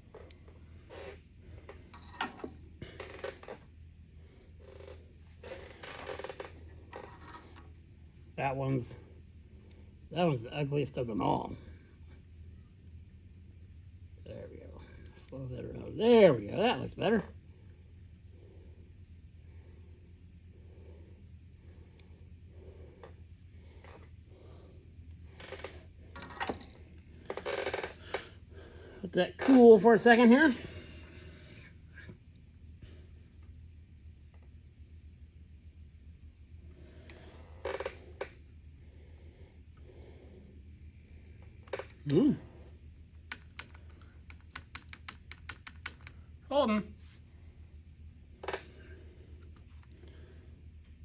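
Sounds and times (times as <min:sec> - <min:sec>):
low steady hum: 0:00.0 - 0:51.0
breathing close to microphone: 0:36.6 - 0:41.6.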